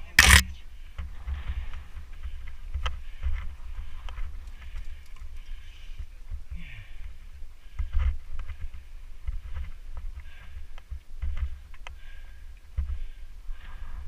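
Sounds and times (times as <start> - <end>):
bikes clicking and rattling: 0.0 - 12.2
sharp clicks: 0.1 - 0.5.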